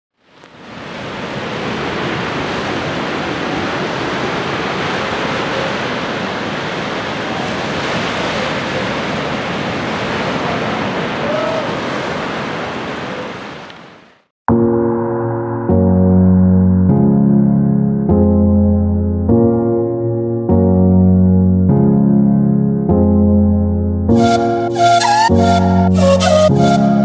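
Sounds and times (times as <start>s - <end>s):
waves washing onto shore: 0.2s - 14.2s.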